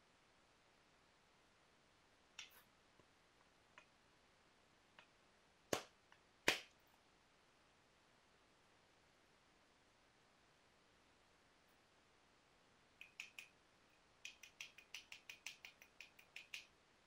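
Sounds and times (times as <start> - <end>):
stone tool ticking on stone: 13.0 - 13.5, 14.2 - 16.7.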